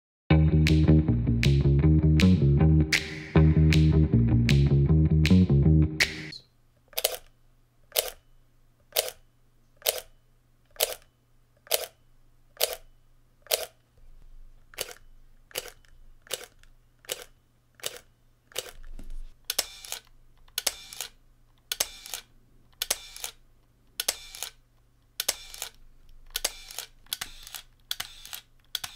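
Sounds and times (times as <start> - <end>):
camera shutter clicking: 19.5 - 23.4, 24.0 - 24.6, 25.2 - 28.9
camera shutter double clicks: 20.6 - 23.4, 24.0 - 24.6, 25.2 - 28.9.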